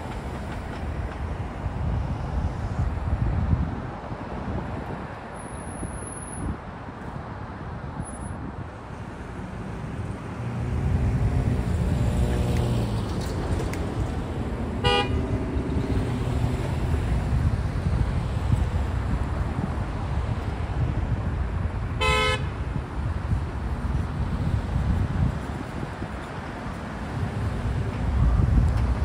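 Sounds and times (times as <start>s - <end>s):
cars driving by: 0.0s - 29.0s
short car horn toot: 14.9s - 15.2s, 22.0s - 22.5s.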